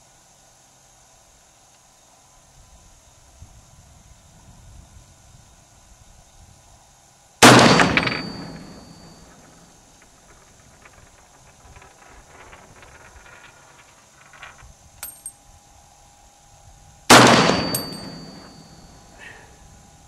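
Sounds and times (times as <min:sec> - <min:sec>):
rifle shot with echo: 0:07.4 - 0:09.7, 0:17.1 - 0:19.1.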